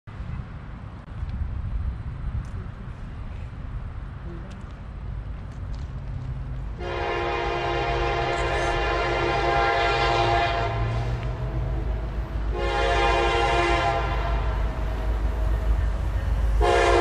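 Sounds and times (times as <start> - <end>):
locomotive air horn: 6.8 - 11.4, 12.5 - 14.9, 16.6 - 17.0.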